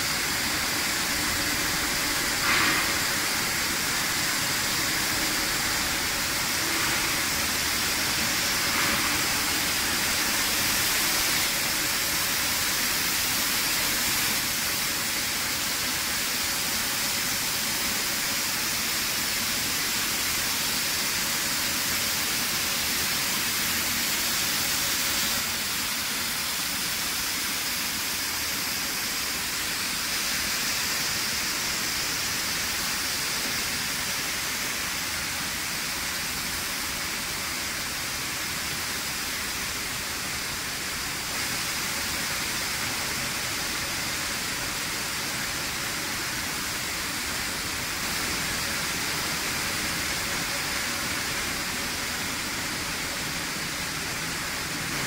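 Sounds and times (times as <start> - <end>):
hissing machinery: 0.0 - 37.4.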